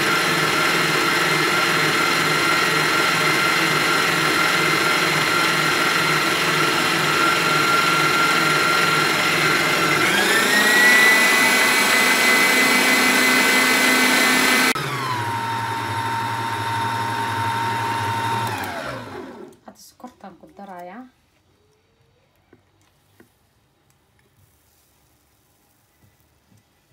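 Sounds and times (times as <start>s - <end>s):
stand mixer motor whining: 0.0s - 19.6s.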